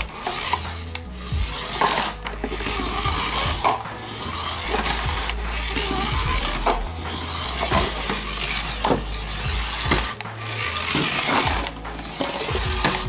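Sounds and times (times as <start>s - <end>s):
toy car motor whirring: 0.0s - 13.0s.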